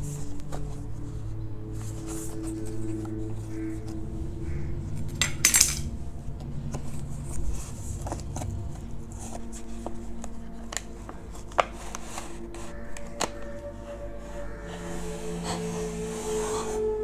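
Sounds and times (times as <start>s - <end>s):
cardboard packaging handled: 1.7s - 4.0s, 6.4s - 13.8s.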